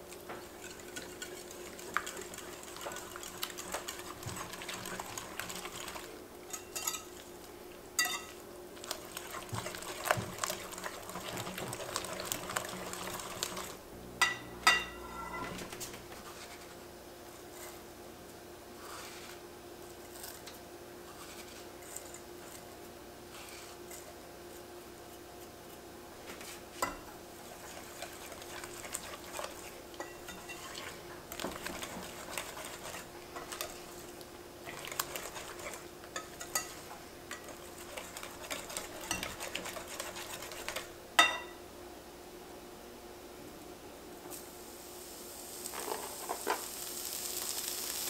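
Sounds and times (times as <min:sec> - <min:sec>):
whisk beating mixture in glass bowl: 0:00.4 - 0:07.2, 0:08.0 - 0:13.8, 0:26.8 - 0:41.3
whisk clinking against glass: 0:06.5 - 0:07.1, 0:08.0 - 0:08.4, 0:30.0 - 0:30.9, 0:34.8 - 0:41.6.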